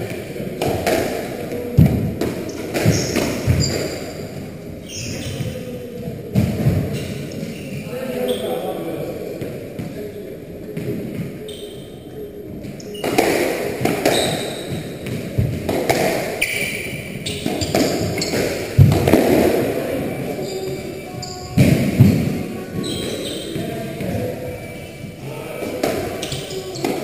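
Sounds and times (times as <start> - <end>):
shoe squeaks on wooden floor: 2.5 - 4.2, 4.8 - 5.6, 11.4 - 12.0, 14.0 - 15.0, 16.4 - 18.7, 20.2 - 25.3, 26.0 - 27.0.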